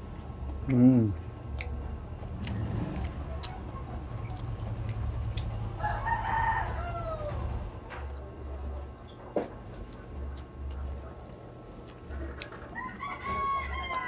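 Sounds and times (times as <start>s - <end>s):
steady low hum: 0.0s - 14.0s
mouth clicks from chewing: 0.6s - 1.8s, 2.4s - 3.6s, 4.2s - 5.6s, 10.3s - 12.7s
rooster crowing: 5.7s - 7.7s, 12.6s - 14.0s.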